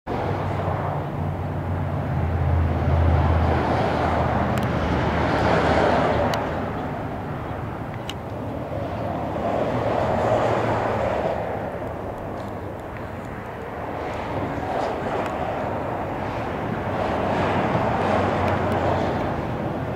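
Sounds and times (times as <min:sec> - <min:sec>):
vehicle rushing noise: 0:00.1 - 0:19.9.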